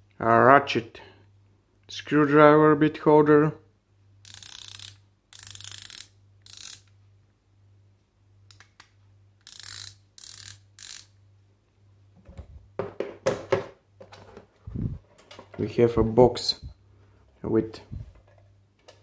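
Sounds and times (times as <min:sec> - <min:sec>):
ratchet screwdriver clicking: 0:04.2 - 0:06.9, 0:08.5 - 0:11.2.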